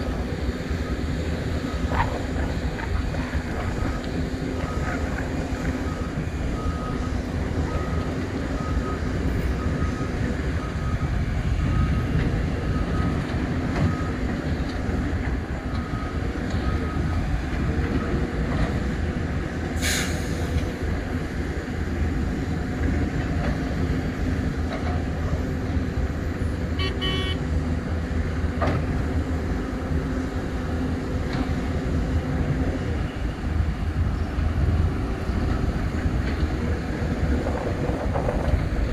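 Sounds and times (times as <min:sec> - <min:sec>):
diesel engines under load: 0:00.0 - 0:38.9
short beeps: 0:26.8 - 0:27.4.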